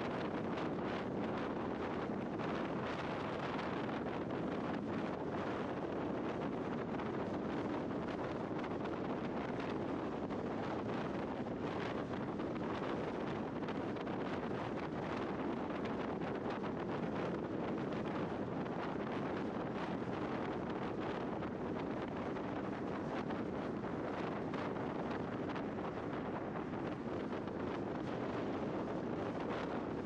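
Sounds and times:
wind rushing over microphone: 0:00.0 - 0:30.0.

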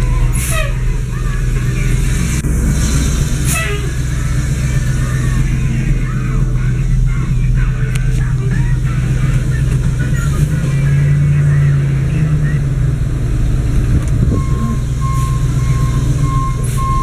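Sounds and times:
truck engine idling: 0:00.0 - 0:17.0.

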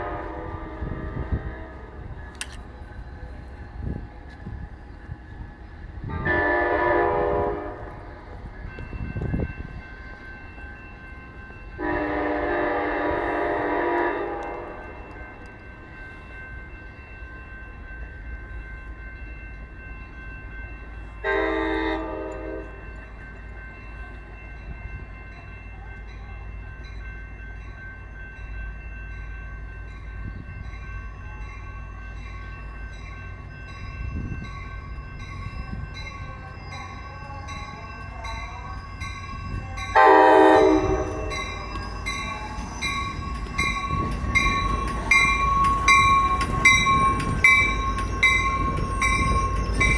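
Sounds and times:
train horn blasts: 0:00.0 - 0:02.1, 0:06.1 - 0:08.2, 0:11.8 - 0:15.1, 0:21.2 - 0:22.8, 0:39.8 - 0:41.7
low rumble of train: 0:00.0 - 0:49.9.

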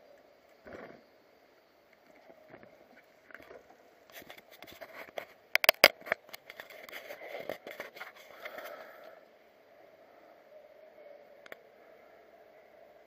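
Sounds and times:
camera handling clicks and scrapes: 0:04.1 - 0:08.6.

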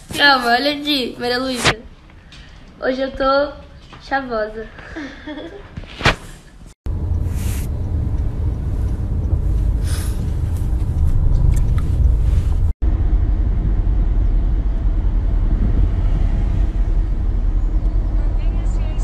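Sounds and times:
car cabin rumble: 0:06.9 - 0:12.7.

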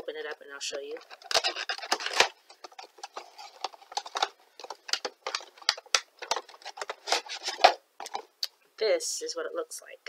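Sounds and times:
packaging crackling and rustling: 0:00.5 - 0:08.3
cardboard box being opened: 0:01.0 - 0:07.8.

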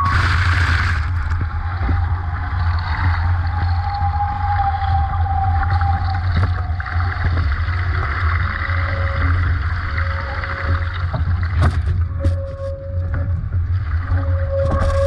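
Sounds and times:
low rumble: 0:00.0 - 0:15.0
water rushing past hulls: 0:00.0 - 0:15.0
faint whistling tone: 0:08.7 - 0:10.9.

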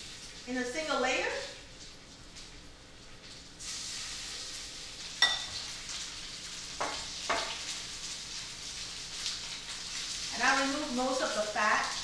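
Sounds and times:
chicken sizzling in hot oil: 0:00.0 - 0:12.0
metal tongs clinking on pan: 0:05.2 - 0:05.7.

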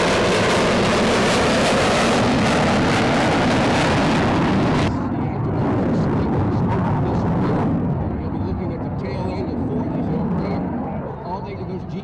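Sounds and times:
fighter jets flying low: 0:00.0 - 0:12.0.

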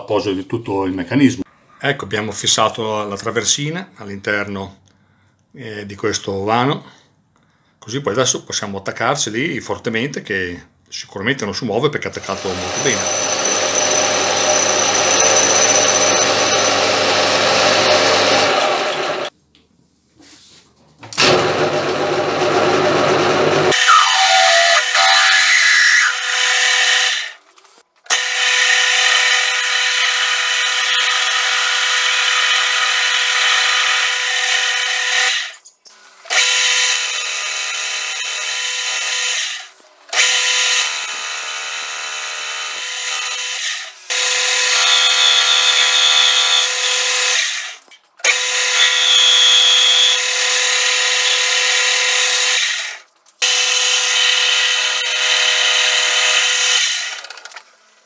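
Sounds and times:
drill squealing in metal: 0:12.2 - 0:19.3, 0:23.7 - 0:27.1, 0:29.2 - 0:35.6, 0:36.4 - 0:39.3, 0:40.2 - 0:43.5, 0:44.1 - 0:47.0, 0:48.2 - 0:50.2
lathe machine whine: 0:12.2 - 0:19.3.

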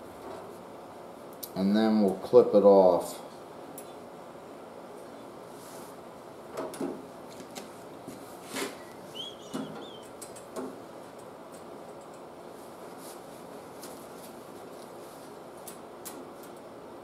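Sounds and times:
wire cutters clicking and tapping: 0:09.5 - 0:12.3.

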